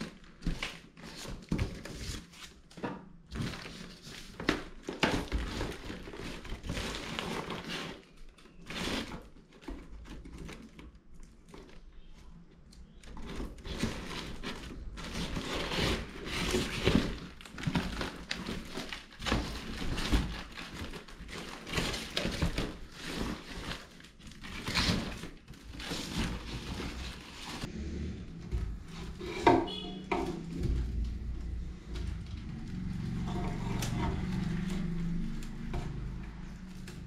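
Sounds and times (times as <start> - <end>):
cardboard and paper tearing: 3.4 - 9.7, 13.2 - 27.7
rattan basket knocking and creaking: 28.3 - 37.0.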